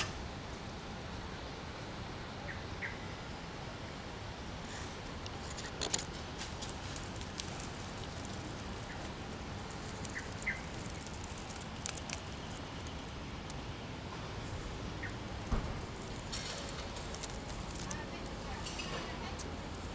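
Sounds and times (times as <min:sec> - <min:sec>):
outdoor background hiss: 0:00.0 - 0:19.9
twigs and leaves rustling: 0:04.6 - 0:19.9.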